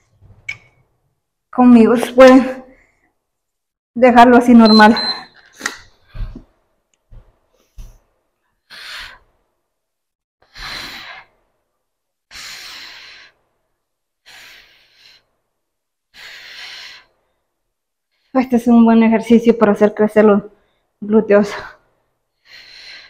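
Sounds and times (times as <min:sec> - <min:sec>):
woman breathing hard: 0:08.5 - 0:09.4, 0:10.4 - 0:11.4, 0:12.3 - 0:13.5, 0:14.2 - 0:15.4, 0:16.1 - 0:17.6, 0:21.6 - 0:23.0.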